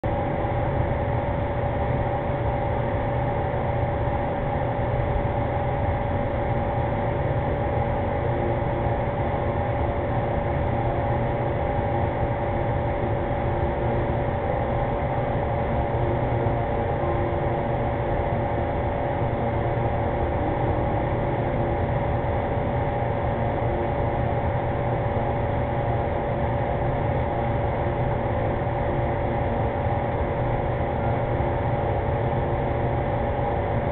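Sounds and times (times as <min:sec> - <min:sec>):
steady hum and hiss: 0:00.0 - 0:33.9.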